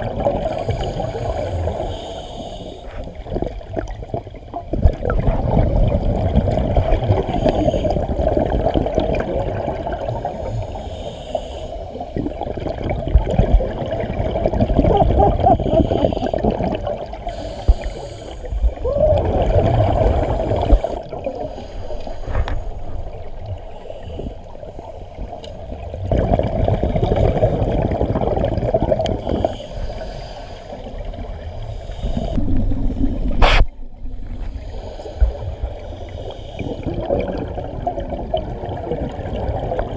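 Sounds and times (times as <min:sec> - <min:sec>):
underwater exhaled bubbles rumbling: 0:00.0 - 0:02.2, 0:02.9 - 0:10.8, 0:11.9 - 0:39.9
regulator inhalations: 0:00.5 - 0:03.1, 0:10.4 - 0:12.0, 0:17.3 - 0:18.7, 0:29.2 - 0:31.0, 0:34.4 - 0:36.9.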